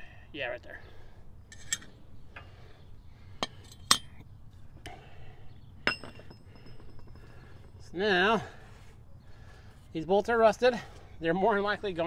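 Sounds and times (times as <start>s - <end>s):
wrench clinking on metal parts: 1.5s - 1.9s, 3.4s - 4.2s, 5.8s - 7.9s.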